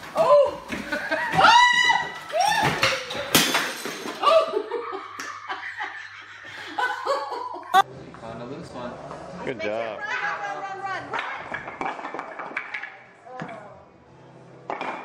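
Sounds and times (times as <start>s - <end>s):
people laughing and shrieking: 0.9s - 3.3s.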